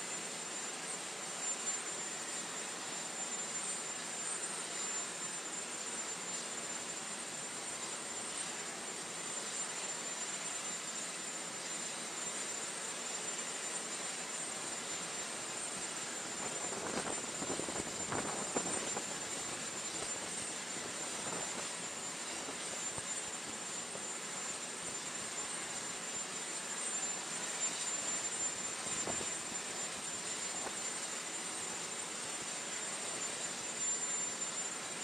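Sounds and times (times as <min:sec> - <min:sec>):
aircraft engine whine: 0:00.0 - 0:35.0.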